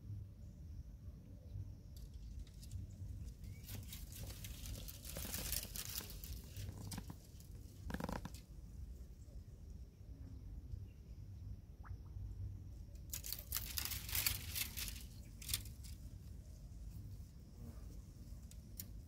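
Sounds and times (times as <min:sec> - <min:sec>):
sapling leaves and branches rustling: 0:02.0 - 0:08.4, 0:13.0 - 0:17.1.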